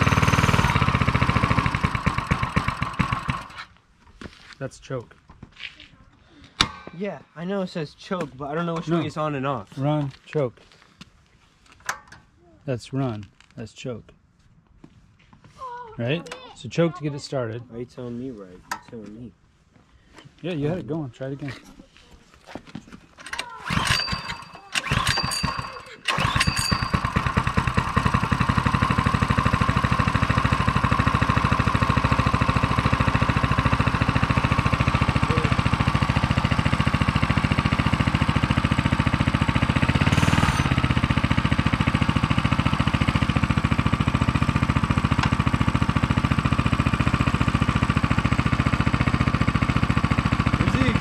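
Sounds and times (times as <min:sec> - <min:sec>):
mini bike engine idling: 0:00.0 - 0:03.7, 0:23.3 - 0:51.0.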